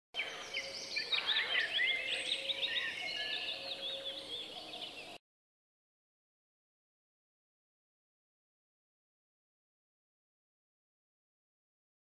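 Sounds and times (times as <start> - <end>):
small birds chirping: 0.2 - 5.2.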